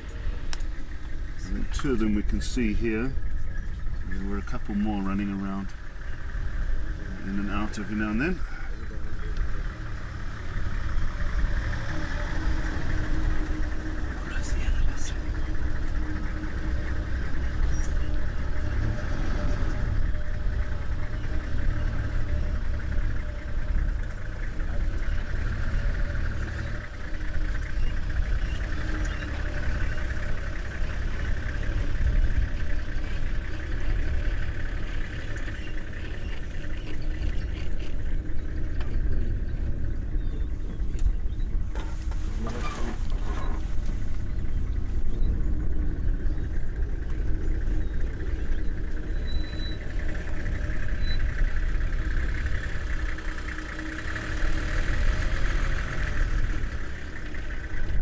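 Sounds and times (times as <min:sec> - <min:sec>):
vehicle engine idling: 0:00.0 - 0:58.0.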